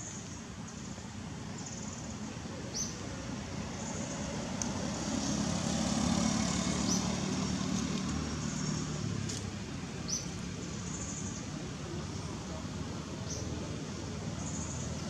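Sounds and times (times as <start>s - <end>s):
outdoor background noise: 0.0s - 15.0s
motor vehicle passing: 3.3s - 11.0s.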